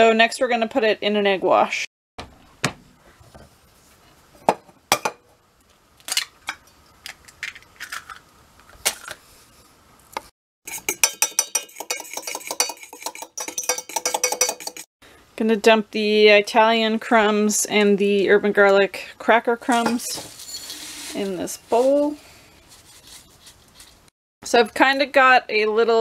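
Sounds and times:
fork beating eggs in metal mug: 0:10.7 - 0:14.9
knocks and clinks: 0:10.8 - 0:14.9.

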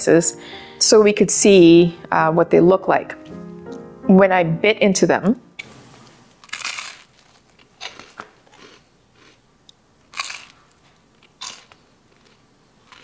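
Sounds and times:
bread crunching being bitten: 0:06.4 - 0:13.0.

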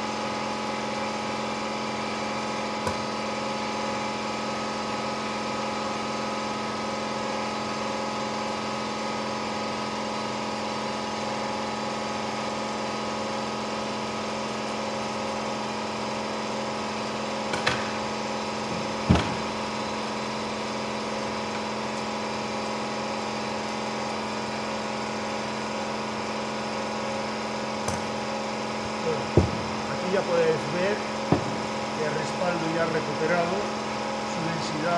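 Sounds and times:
steady machine hum: 0:00.0 - 0:34.9
short knocks: 0:29.3 - 0:29.8.

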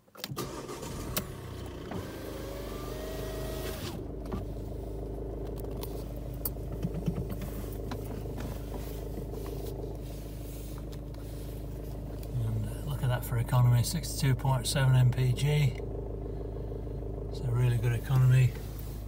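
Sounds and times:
diesel engine idling: 0:00.4 - 0:19.0.

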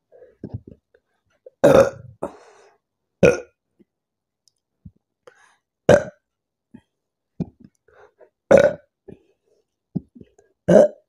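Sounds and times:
woman burping: 0:01.6 - 0:02.4, 0:03.2 - 0:03.5, 0:08.5 - 0:08.9, 0:10.7 - 0:11.0.

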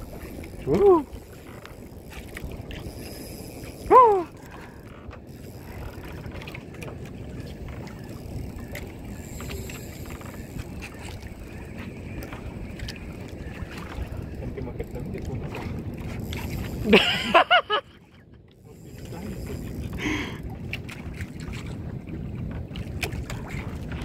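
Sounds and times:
fishing reel drag ticking: 0:00.0 - 0:17.3, 0:18.5 - 0:20.5
short voice-like cry: 0:03.9 - 0:04.4.

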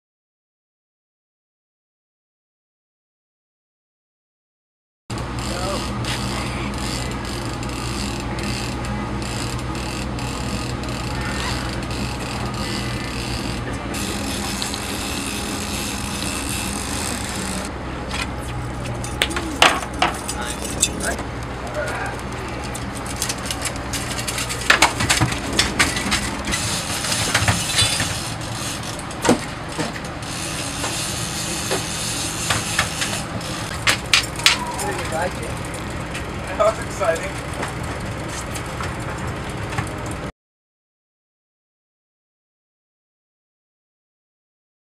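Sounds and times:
boat engine droning: 0:05.1 - 0:40.3
fishing reel ratcheting clicks: 0:05.4 - 0:17.7.

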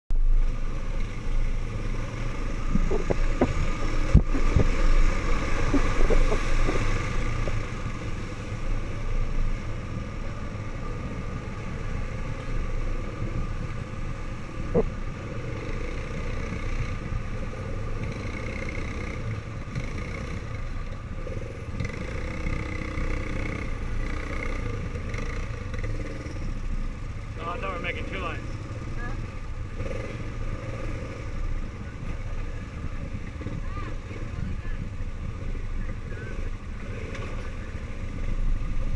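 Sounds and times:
knocks and rattles over rough dirt: 0:00.1 - 0:10.2
atv engine running: 0:00.1 - 0:38.9.

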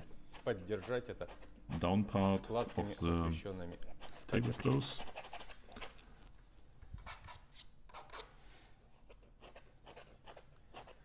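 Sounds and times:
painting knife scraping canvas: 0:00.0 - 0:06.0, 0:07.0 - 0:11.0.

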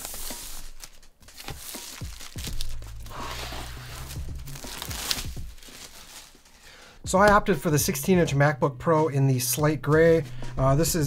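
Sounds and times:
plastic wrap crinkling: 0:00.0 - 0:06.9.

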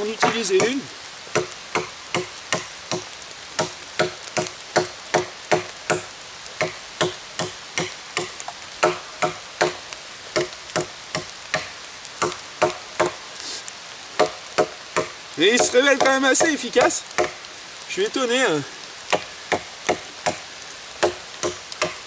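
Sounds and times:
knife chopping wood: 0:00.2 - 0:09.8, 0:14.2 - 0:17.4, 0:21.0 - 0:22.0.

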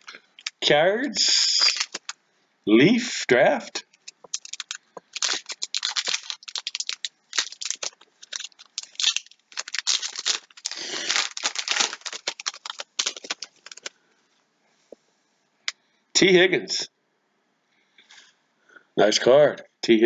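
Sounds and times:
foil wrapper crinkling and tearing: 0:01.2 - 0:02.2, 0:03.9 - 0:14.0.

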